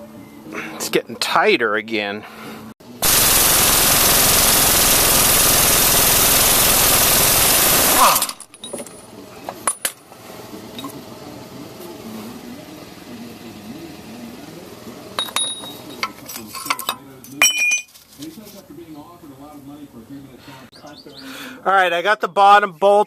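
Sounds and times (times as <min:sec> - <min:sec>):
air impact wrench hammering: 0:03.0 - 0:08.4.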